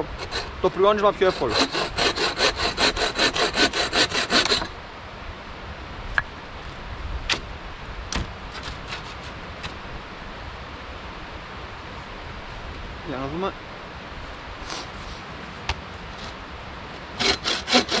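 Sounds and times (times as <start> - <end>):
bow saw cutting branch: 0.0 - 4.8, 7.3 - 7.5, 8.1 - 9.8, 14.6 - 15.2, 17.2 - 18.0.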